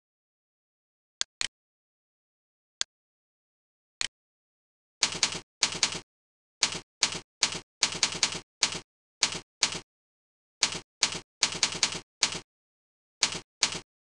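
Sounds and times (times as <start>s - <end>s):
keyboard typing: 5.0s - 9.9s, 10.6s - 12.5s, 13.2s - 13.9s.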